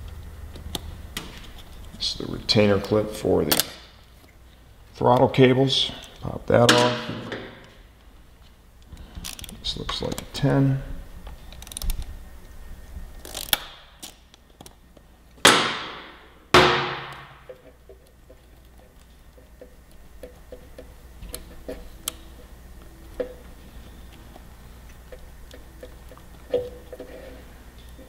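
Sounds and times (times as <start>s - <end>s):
small metallic clicks: 11.2s - 12.1s
loud ringing knocks: 15.5s - 17.5s.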